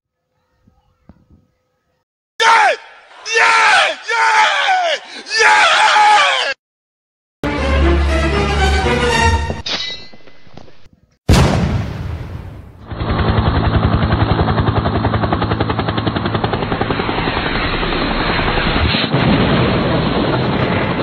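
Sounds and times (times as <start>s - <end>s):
loud bang: 11.3s - 13.1s.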